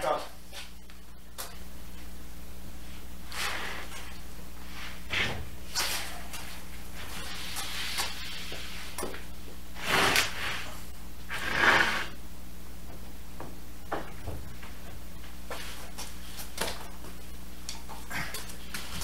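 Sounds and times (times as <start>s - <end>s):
plywood scraping on floor: 9.8s - 12.2s.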